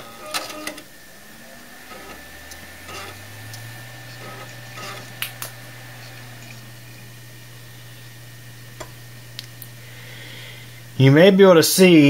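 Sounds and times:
computer fans spinning up: 0.0s - 12.0s
faint high whine: 0.0s - 12.0s
sharp clicks: 4.2s - 5.6s.

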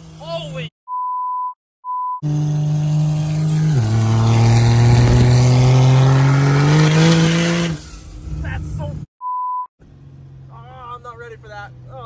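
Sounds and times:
censor bleeps: 0.9s - 2.2s, 9.2s - 9.7s
engine accelerating hard: 2.2s - 8.6s.

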